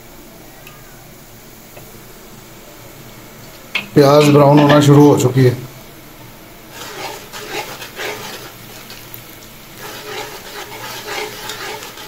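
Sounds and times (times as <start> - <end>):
onions sizzling in hot oil: 1.4 - 12.0
metal spoon scraping a pot: 6.7 - 9.1, 9.8 - 12.0.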